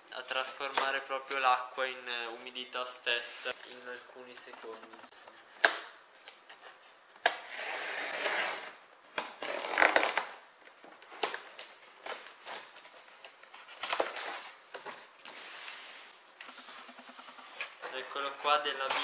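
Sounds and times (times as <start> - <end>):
tape and cardboard tearing: 7.2 - 10.4.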